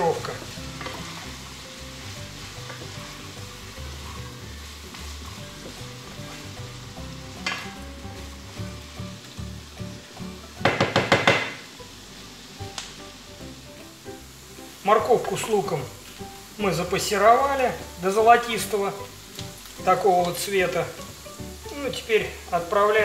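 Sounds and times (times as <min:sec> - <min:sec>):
vegetables sizzling in a frying pan: 0:00.0 - 0:23.0
sharp knocks: 0:10.6 - 0:11.6.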